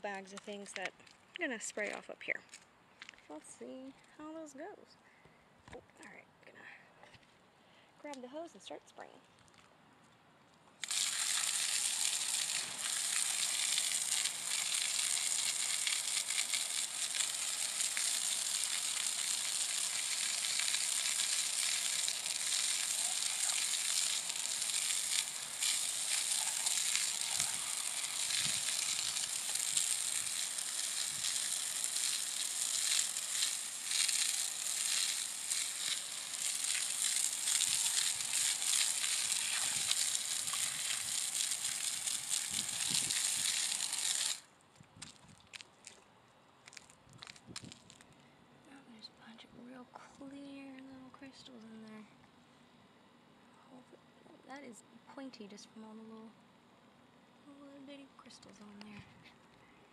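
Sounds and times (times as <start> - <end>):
hose water jet spraying on rock: 10.8 - 44.4.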